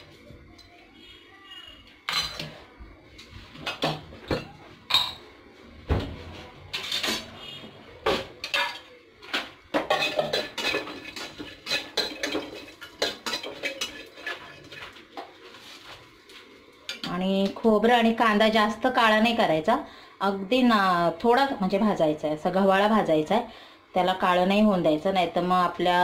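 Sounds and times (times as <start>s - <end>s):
spatula knocking and scraping: 8.0s - 15.6s.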